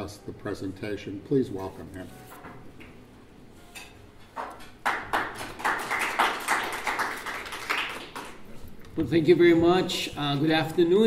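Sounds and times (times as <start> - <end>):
small audience applauding: 4.7 - 8.5.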